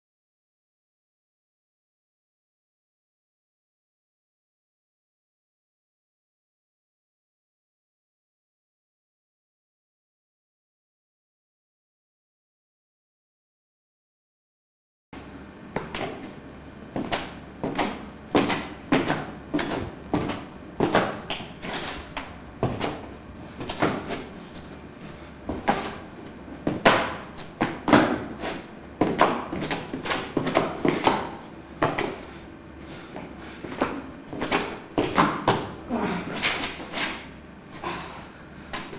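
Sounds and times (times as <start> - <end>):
footsteps on stone paving: 17.0 - 26.0, 26.6 - 32.2.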